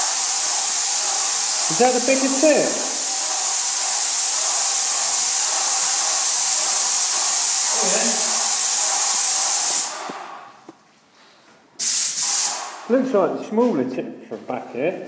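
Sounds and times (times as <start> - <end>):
paint sprayer hissing: 0.0 - 10.7, 11.8 - 12.9.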